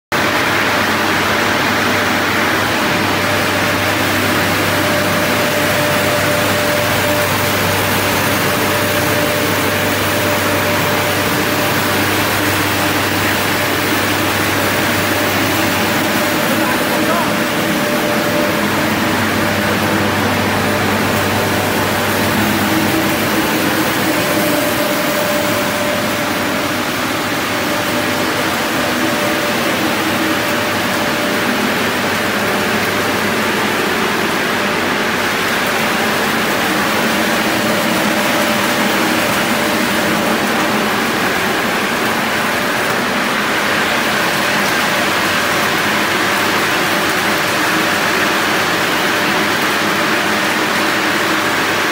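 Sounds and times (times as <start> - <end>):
machine mechanical din: 0.2 - 50.1
low hum: 2.8 - 42.0.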